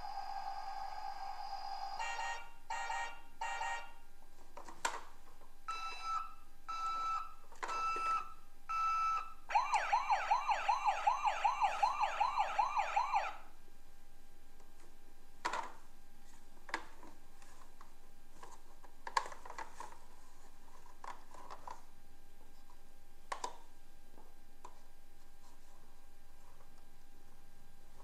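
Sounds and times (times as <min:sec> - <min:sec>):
toy yelping siren: 0:09.5 - 0:13.4.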